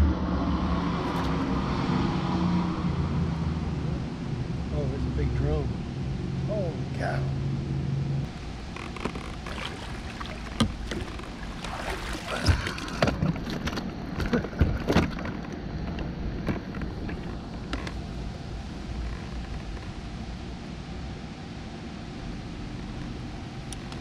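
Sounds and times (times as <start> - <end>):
low rumble on water: 7.9 - 24.0.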